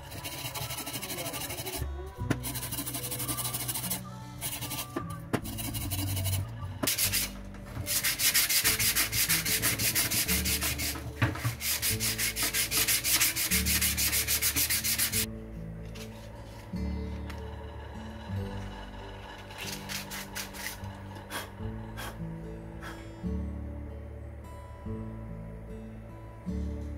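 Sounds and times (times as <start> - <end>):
scrubbing rusty metal: 0.0 - 15.3, 18.9 - 22.2.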